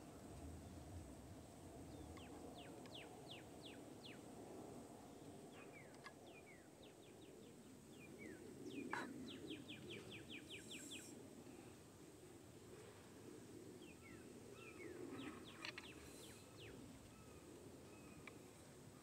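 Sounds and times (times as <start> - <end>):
birds chirping: 5.1 - 11.2, 13.7 - 18.5.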